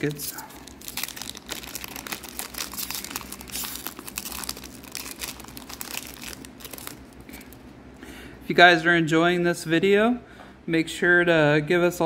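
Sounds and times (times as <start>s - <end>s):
foil pack crinkling: 0.0s - 7.6s.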